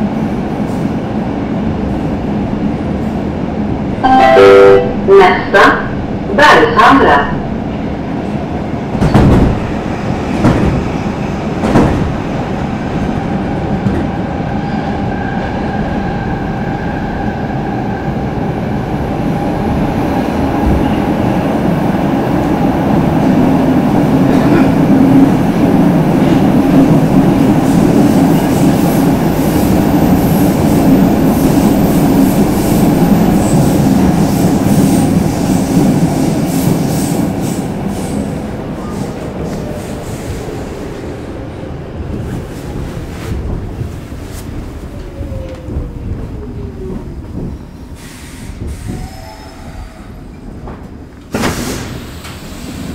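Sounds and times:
wheels rumbling on rails: 0:38.1 - 0:49.0.

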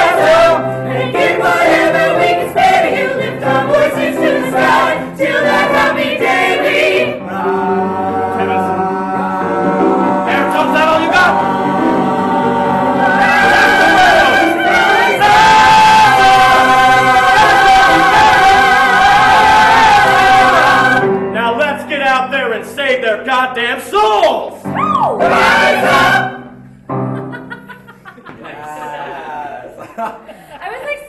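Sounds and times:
choir singing gospel song: 0:00.0 - 0:21.2, 0:25.1 - 0:26.6
piano accompaniment: 0:00.0 - 0:28.3.

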